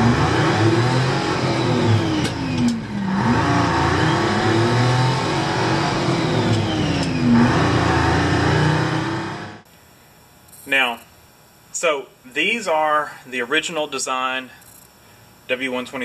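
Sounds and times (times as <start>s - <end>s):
vehicle engine revving: 0.0s - 9.6s.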